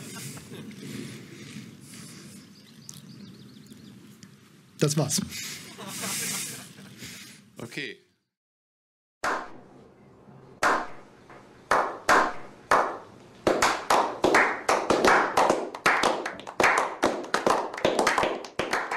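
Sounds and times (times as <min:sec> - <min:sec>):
people clapping: 0:11.7 - 0:18.9.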